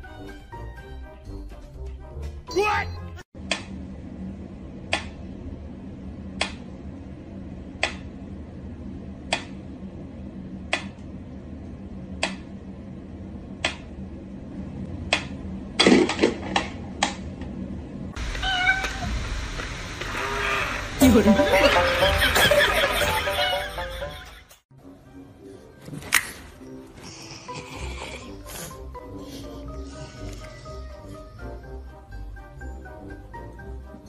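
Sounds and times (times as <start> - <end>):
steady low hum: 3.4 - 24.4.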